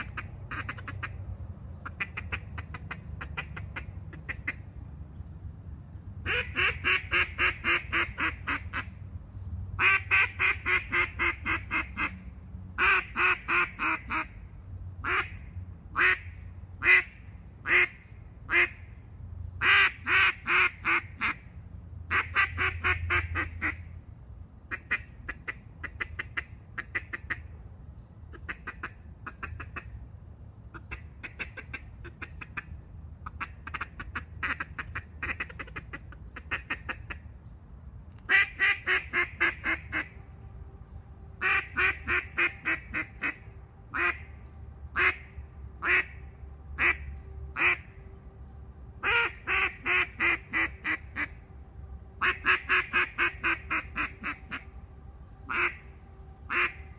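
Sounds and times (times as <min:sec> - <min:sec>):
duck call quacks: 0:00.0 - 0:01.2, 0:01.8 - 0:04.6, 0:06.3 - 0:08.9, 0:09.8 - 0:12.2, 0:12.8 - 0:14.3, 0:19.6 - 0:21.4, 0:30.7 - 0:37.2, 0:38.3 - 0:40.1, 0:41.4 - 0:43.4, 0:44.0 - 0:44.2, 0:45.8 - 0:46.1, 0:46.8 - 0:47.8, 0:49.0 - 0:51.3, 0:52.2 - 0:54.6, 0:55.5 - 0:55.8, 0:56.5 - 0:56.8.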